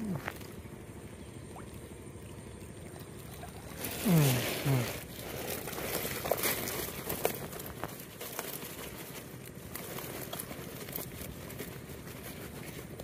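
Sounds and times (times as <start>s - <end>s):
net and plastic sack rustling: 3.2s - 13.0s.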